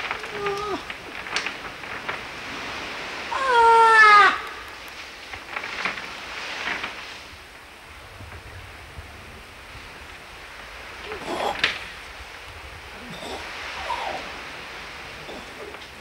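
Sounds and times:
faint clicks and rustles: 0.0s - 3.3s, 4.4s - 16.0s
seal pup calling: 13.0s - 14.5s.

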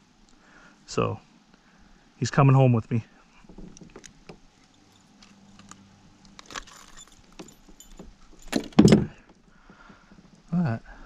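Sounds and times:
loud knocks: 8.4s - 10.0s.

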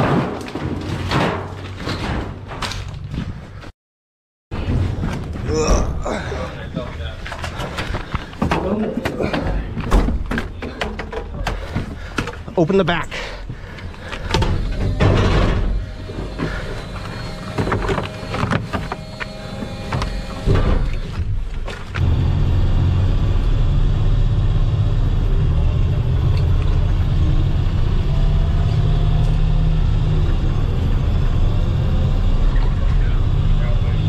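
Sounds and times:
vehicle engine rumble from inside: 21.4s - 34.0s.

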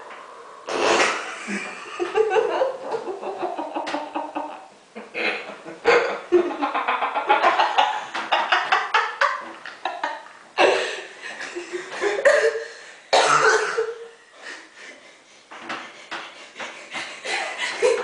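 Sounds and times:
people laughing hard: 1.2s - 12.2s, 15.8s - 18.0s
people coughing: 5.2s - 6.3s, 10.6s - 14.0s.

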